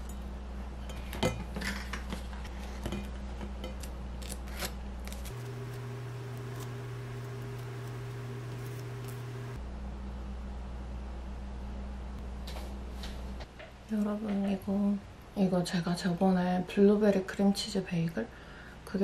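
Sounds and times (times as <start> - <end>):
spreader scraping bagel: 4.5 - 9.6
steady low hum: 5.3 - 13.4.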